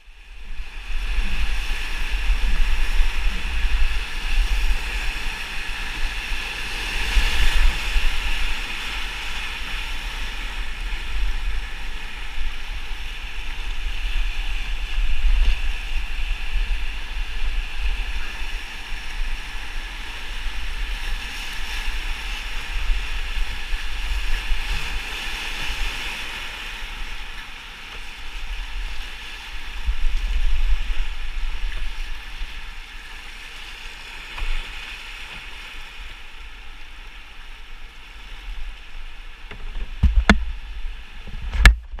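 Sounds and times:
sharp knocks: 39.5 - 40.5.

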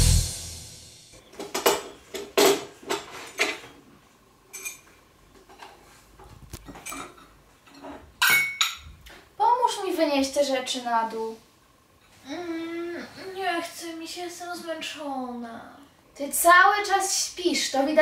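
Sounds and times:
dishes clinking together: 6.7 - 8.9.

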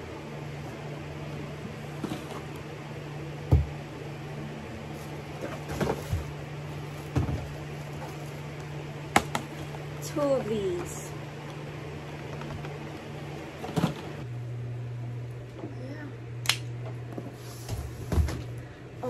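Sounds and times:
steady low hum: 0.0 - 19.0
packages thumping and rustling: 4.9 - 9.8, 17.6 - 18.6.

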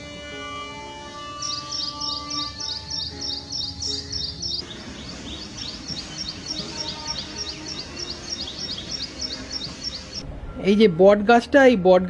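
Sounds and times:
soft background music: 0.0 - 12.0
bird singing high repeated notes: 1.0 - 10.2.

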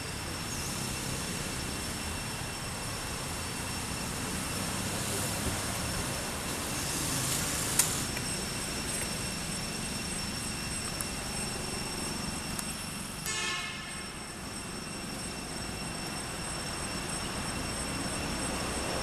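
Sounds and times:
outdoor background noise: 0.0 - 19.0
faint high thin tones: 8.0 - 19.0.

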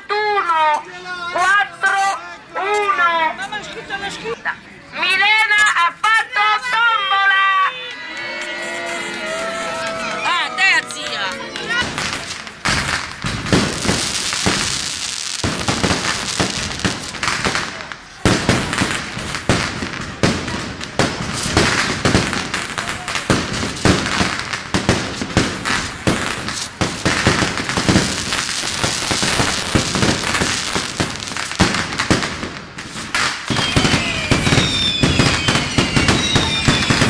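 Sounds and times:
fireworks crackling and popping: 8.4 - 37.0
falling firework whistles: 32.8 - 37.0.

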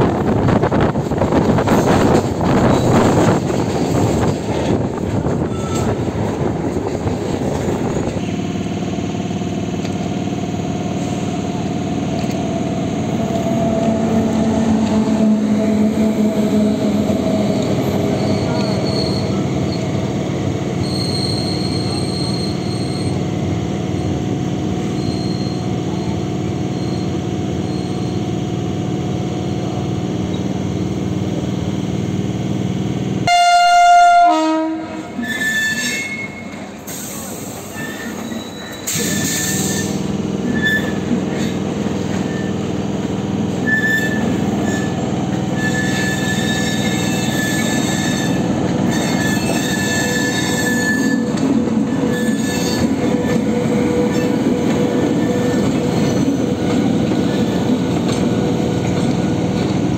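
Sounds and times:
train rumbling: 0.0 - 59.9
high wheel squeals: 5.4 - 6.0, 14.9 - 23.3, 24.8 - 28.4, 35.2 - 42.7, 43.6 - 54.5
train horn blast: 33.2 - 36.4.

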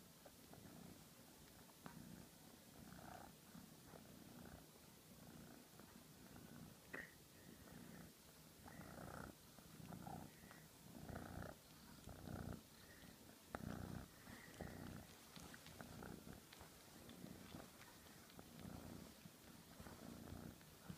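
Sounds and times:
cat purring: 0.0 - 20.9
faint clicks: 11.5 - 20.9.

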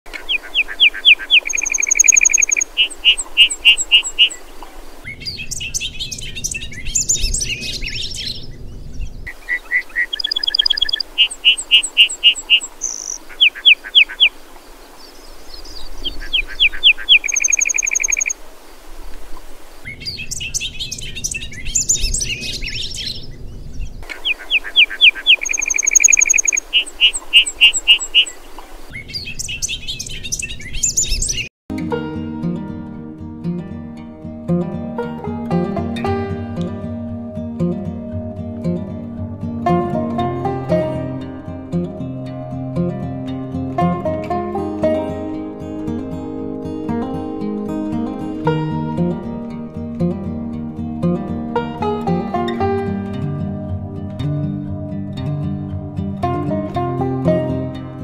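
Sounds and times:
birdsong trills and chirps: 0.1 - 18.4, 19.8 - 31.5.

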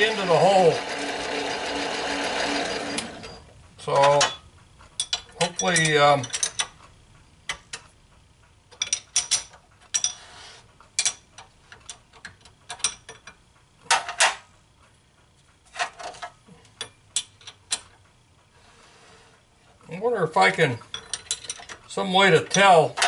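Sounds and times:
metal clicks and clinks: 3.9 - 6.9, 8.7 - 10.2, 20.8 - 23.0.

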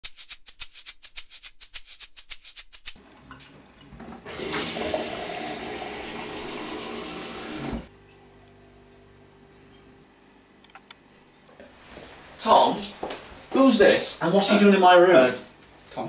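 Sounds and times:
fast sharp ticks: 0.0 - 3.0
water gushing into a glass: 4.4 - 7.7.

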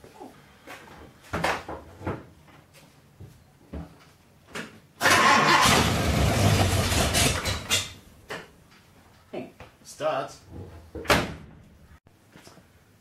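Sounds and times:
engine starter cranking: 5.0 - 8.0.

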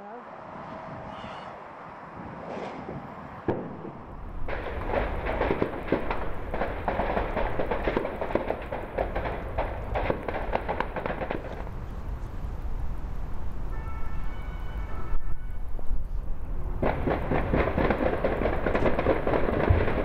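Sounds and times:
explosions: 2.2 - 11.8, 16.8 - 20.0
distant gunfire: 3.5 - 11.6, 16.8 - 20.0.

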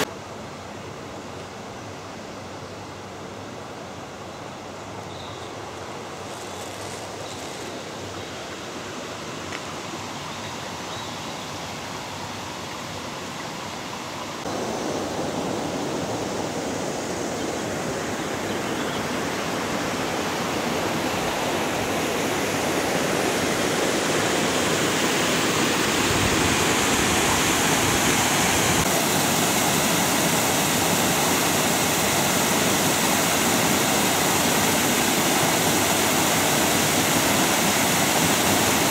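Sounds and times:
water rushing over weir: 11.7 - 38.9.

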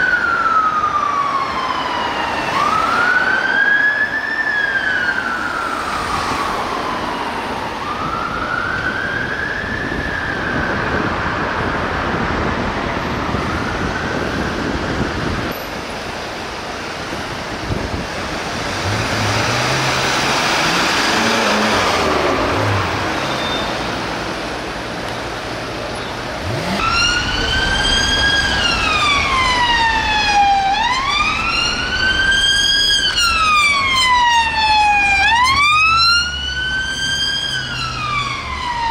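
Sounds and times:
fire engine siren wailing: 0.0 - 15.5, 17.4 - 24.6, 26.4 - 38.9
police car siren wailing: 0.0 - 15.5, 26.4 - 38.9
car engine revving: 18.3 - 24.3, 26.3 - 30.4.

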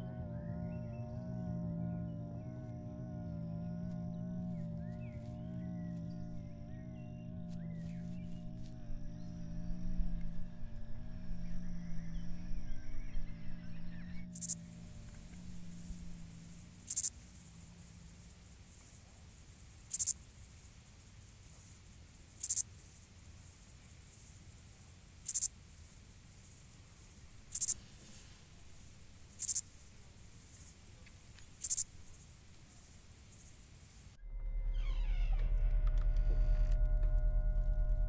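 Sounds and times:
faint low steady background: 0.0 - 38.0
high-pitched insect chirps: 3.3 - 17.7, 19.9 - 20.2, 22.4 - 23.0, 25.3 - 25.5, 26.5 - 33.5.

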